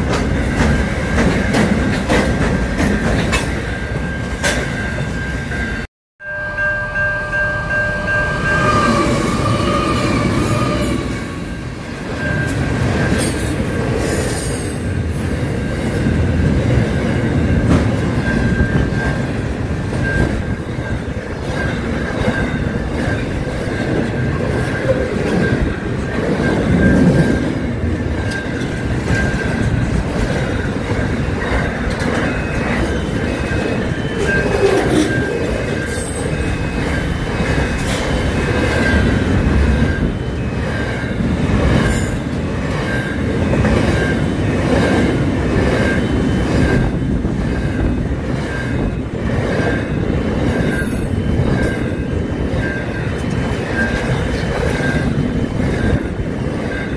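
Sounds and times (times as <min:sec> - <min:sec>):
train wheels rumbling on rails: 0:00.0 - 0:05.9, 0:07.0 - 0:56.9
high steady tone: 0:02.4 - 0:13.9.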